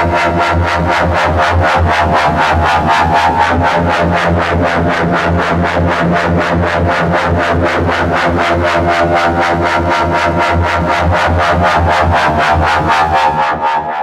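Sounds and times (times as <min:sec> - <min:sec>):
synthesizer chords: 0:00.0 - 0:14.0.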